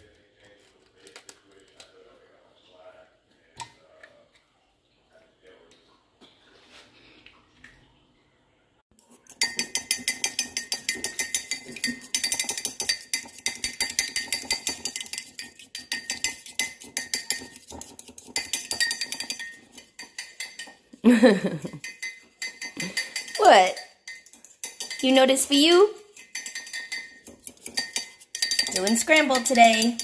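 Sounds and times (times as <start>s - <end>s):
fork clinking against mug: 9.2s - 30.0s.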